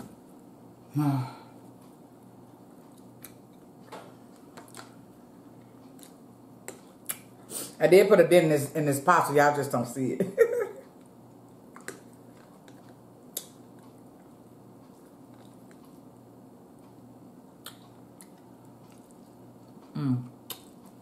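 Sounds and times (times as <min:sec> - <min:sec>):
person humming: 0:00.9 - 0:01.5, 0:19.9 - 0:20.4
person chewing: 0:02.7 - 0:07.5, 0:11.4 - 0:16.2, 0:16.8 - 0:21.0.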